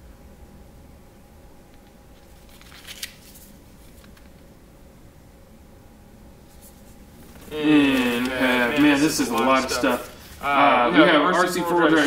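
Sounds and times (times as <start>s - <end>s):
faint steady hum: 0.0s - 12.0s
plastic bag crinkling: 7.2s - 10.5s.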